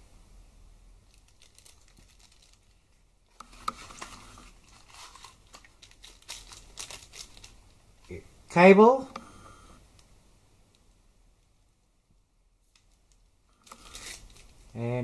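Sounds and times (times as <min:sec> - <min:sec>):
plastic bag crinkling: 0:01.1 - 0:08.2, 0:12.7 - 0:14.8.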